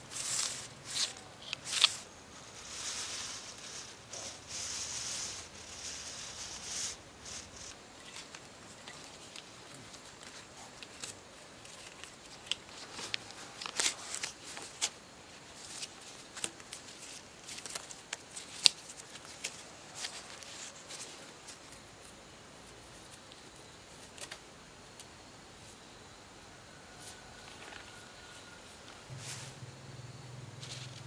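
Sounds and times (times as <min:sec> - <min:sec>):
strips rustling: 0:00.0 - 0:21.8.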